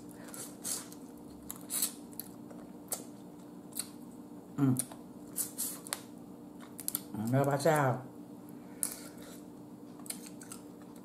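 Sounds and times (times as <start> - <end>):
chewing and lip-smacking: 0.2 - 4.0, 8.8 - 11.0.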